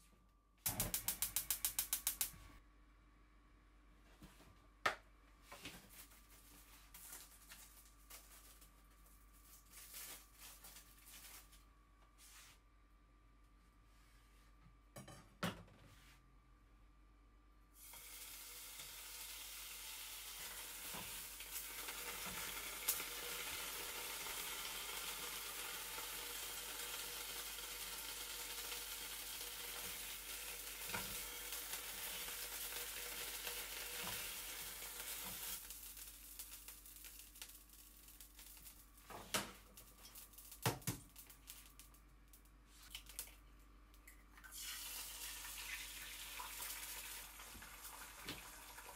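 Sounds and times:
ham sizzling in frying pan: 0:17.8 - 0:41.8, 0:44.4 - 0:48.9.

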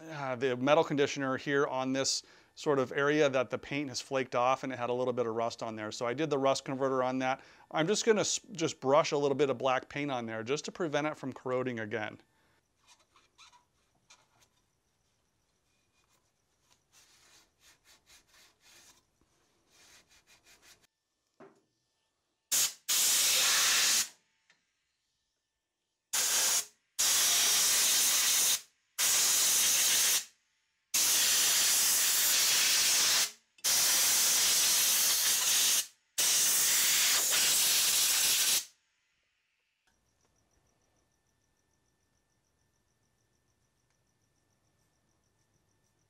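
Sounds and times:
compressed air blow gun hissing: 0:22.5 - 0:24.1, 0:26.2 - 0:30.2, 0:31.0 - 0:38.7.

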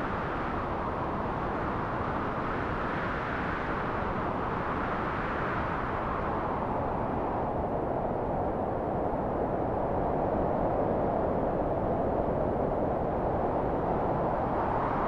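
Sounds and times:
rushing wind: 0:00.0 - 0:15.0.

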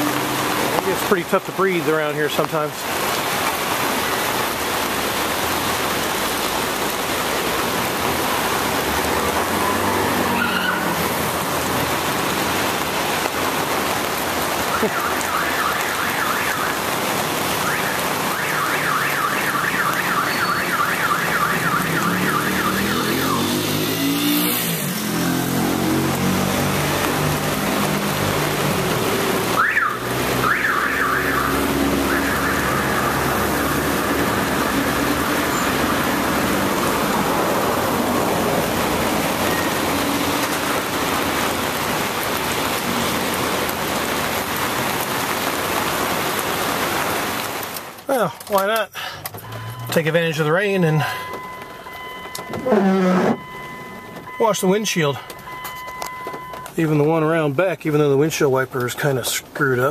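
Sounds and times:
rain on wet street: 0:00.0 - 0:59.9
car alarm warbling: 0:09.7 - 0:11.0, 0:14.7 - 0:16.9, 0:17.5 - 0:25.2, 0:29.4 - 0:37.2, 0:39.4 - 0:40.4, 0:49.4 - 0:56.8
vehicle driving past: 0:21.9 - 0:28.2.

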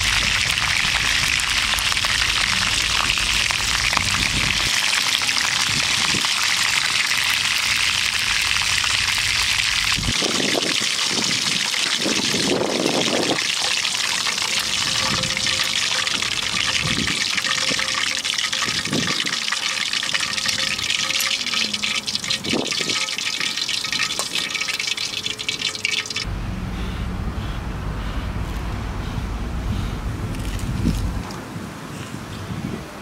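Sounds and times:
oil sizzling in frying pan: 0:00.0 - 0:26.3
tongs knocking: 0:13.6 - 0:26.2.

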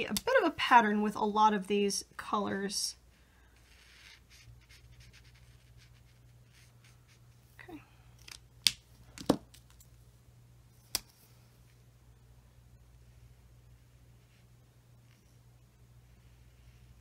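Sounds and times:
marker scratching on cardstock: 0:03.6 - 0:07.2.

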